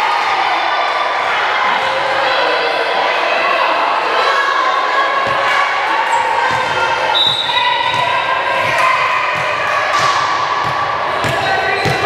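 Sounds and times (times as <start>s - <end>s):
volleyballs thudding on gym floor: 6.5s - 12.0s.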